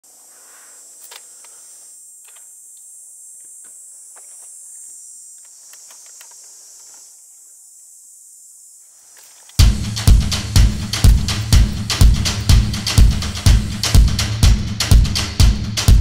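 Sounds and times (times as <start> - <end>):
insects chirping in grass: 0.0 - 9.6
faint clicks: 5.4 - 7.1.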